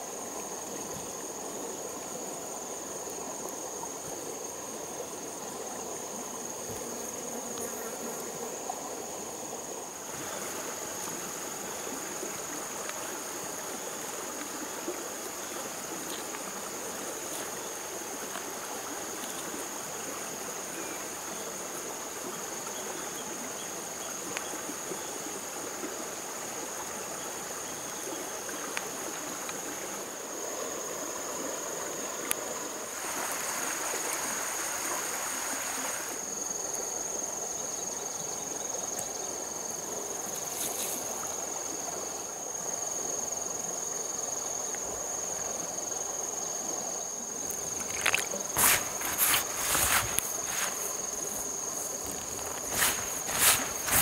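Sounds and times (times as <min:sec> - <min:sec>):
insects droning: 0:00.0 - 0:54.0
rushing hiss: 0:32.9 - 0:36.2, 0:47.6 - 0:54.0.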